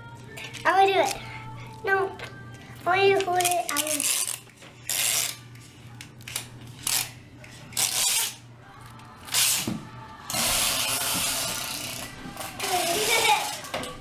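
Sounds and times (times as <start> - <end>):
adhesive tape ripping off roll: 3.4 - 5.5, 7.8 - 13.7.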